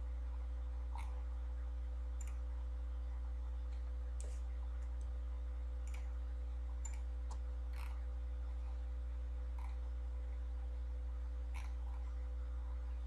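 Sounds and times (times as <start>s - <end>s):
low electrical hum: 0.0s - 13.0s
computer mouse clicking: 2.2s - 2.4s, 5.8s - 6.2s, 6.8s - 8.0s, 11.5s - 12.0s.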